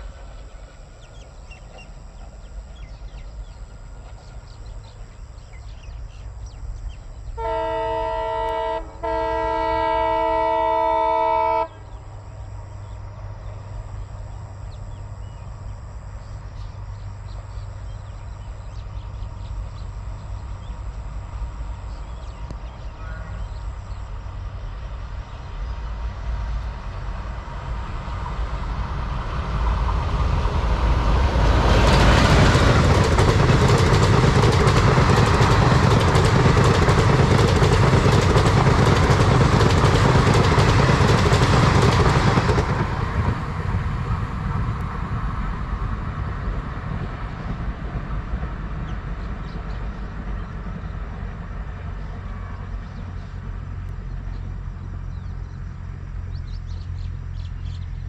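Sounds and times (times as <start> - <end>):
locomotive engine and train rumble: 0.0 - 58.0
locomotive horn blasts: 7.4 - 11.8.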